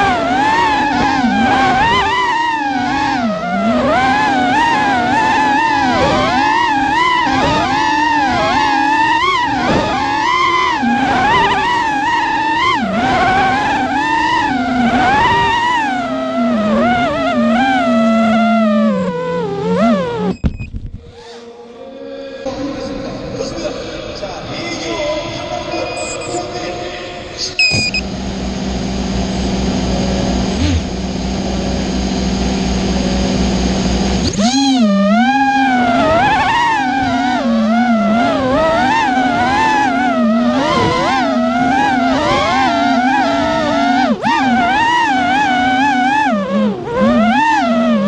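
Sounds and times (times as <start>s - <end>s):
quadcopter motors whining: 0.0s - 21.5s, 27.6s - 48.0s
short electronic beep: 20.3s - 20.8s, 25.8s - 26.5s, 27.6s - 28.1s.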